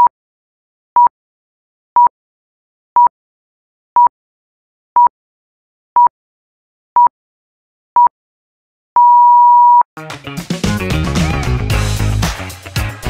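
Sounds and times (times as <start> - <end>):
music: 10.0 - 13.0.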